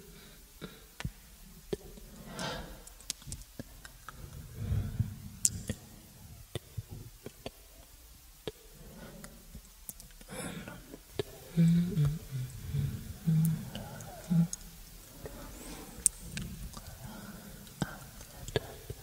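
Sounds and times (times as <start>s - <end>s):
low rumble: 4.0s - 7.3s, 11.3s - 17.8s.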